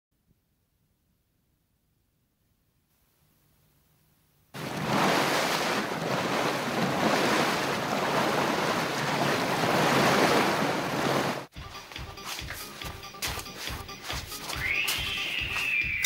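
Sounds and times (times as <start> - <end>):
sea surf rushing: 4.6 - 11.5
wind: 4.6 - 11.5.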